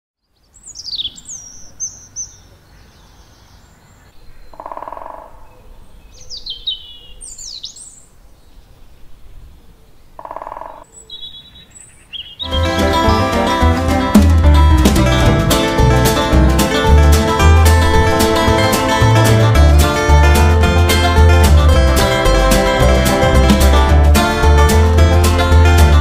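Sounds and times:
songbirds singing: 0:00.2 - 0:13.5.

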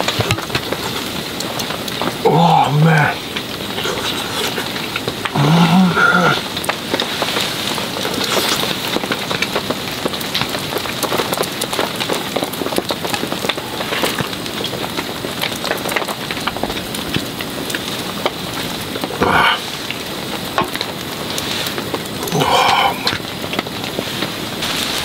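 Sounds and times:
rain pattering on tent fabric: 0:00.0 - 0:25.0
man humming: 0:02.2 - 0:06.5, 0:19.2 - 0:19.6, 0:22.2 - 0:23.2.

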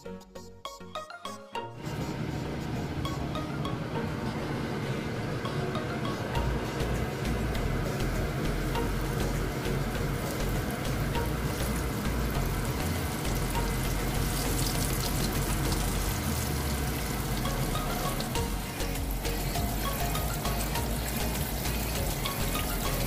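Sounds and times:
fish frying in hot oil: 0:07.2 - 0:23.0.

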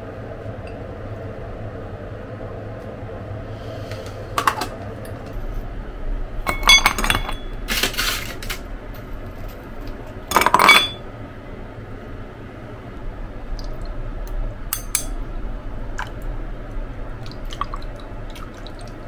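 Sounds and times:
tableware clinking: 0:06.5 - 0:08.2, 0:10.3 - 0:11.0
tableware scraping: 0:06.5 - 0:08.6, 0:10.3 - 0:11.0.

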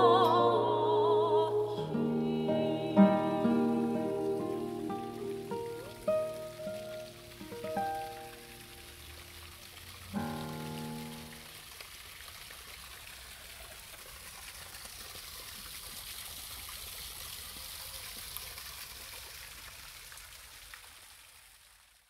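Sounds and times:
running water hissing: 0:00.0 - 0:13.9.

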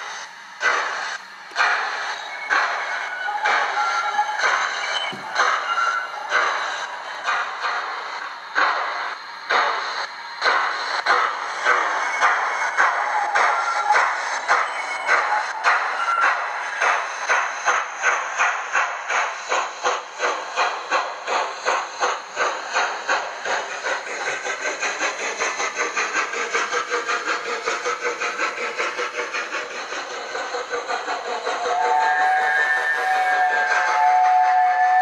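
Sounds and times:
steam locomotive chuffing: 0:00.0 - 0:35.0
locomotive whistle: 0:02.0 - 0:06.8, 0:31.5 - 0:35.0.

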